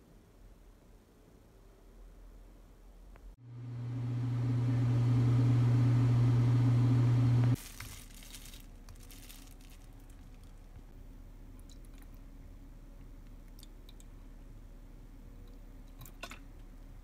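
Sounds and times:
low motor hum: 0:03.4 - 0:07.6.

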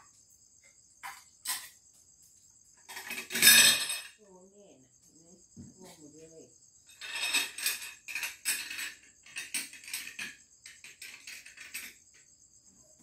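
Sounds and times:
objects rattling and rustling: 0:02.6 - 0:04.2, 0:06.9 - 0:12.5.

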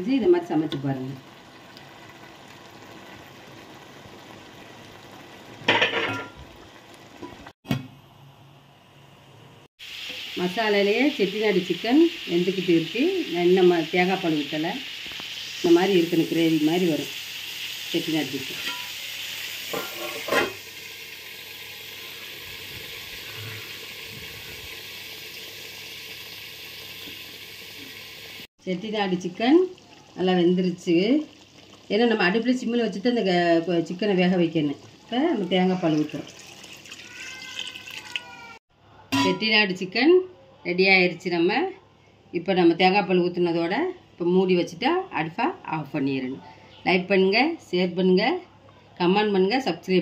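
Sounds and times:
chicken sizzling in a pot: 0:00.0 - 0:07.6, 0:09.7 - 0:39.4.

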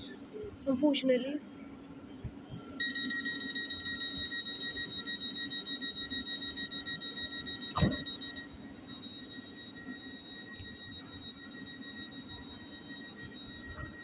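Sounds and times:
high rapid beeping: 0:02.8 - 0:14.0
thump: 0:07.8 - 0:08.0.

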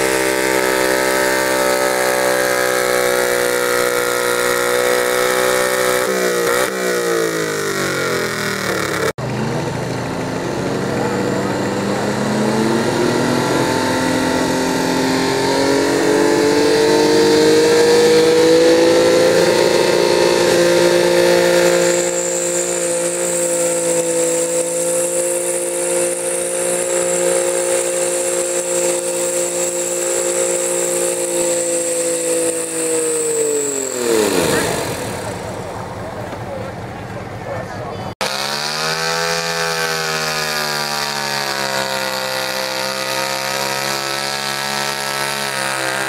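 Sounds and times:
garden tractor engine at full throttle: 0:00.0 - 0:46.0.

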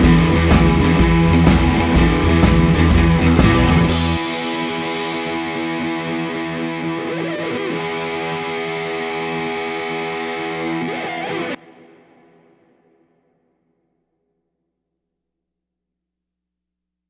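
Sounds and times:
rock music: 0:00.0 - 0:12.4
distorted guitar chord ringing: 0:00.0 - 0:13.4.

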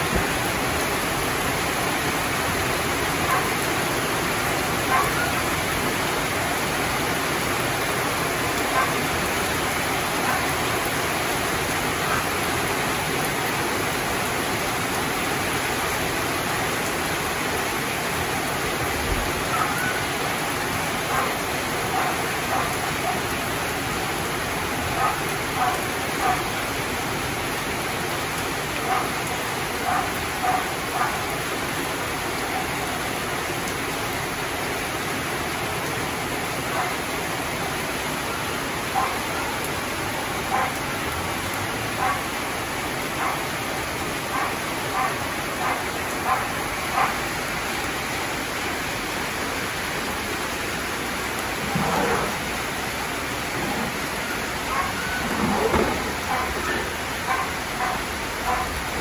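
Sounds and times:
heavy rain pouring: 0:00.0 - 0:59.0
dog barking faintly: 0:03.3 - 0:03.6, 0:04.9 - 0:05.4, 0:08.7 - 0:09.0, 0:19.5 - 0:20.0, 0:38.9 - 0:39.3, 0:42.0 - 0:42.3, 0:43.2 - 0:43.4, 0:44.3 - 0:47.2, 0:54.6 - 0:58.8.

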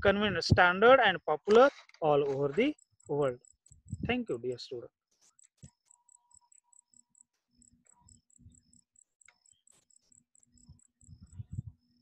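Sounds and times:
high-pitched chirps: 0:05.2 - 0:12.0.

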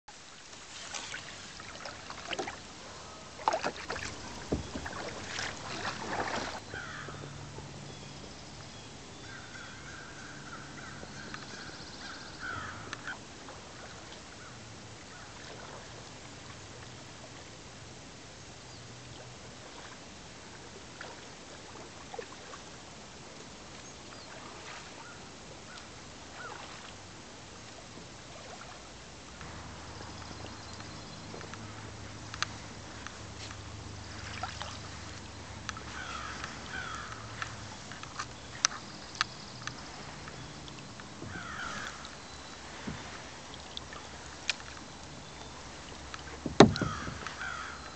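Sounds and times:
paddle in water: 0:00.1 - 0:47.9
crows cawing: 0:06.7 - 0:07.2, 0:12.1 - 0:13.2, 0:35.9 - 0:37.3, 0:41.3 - 0:42.1, 0:46.8 - 0:47.8.

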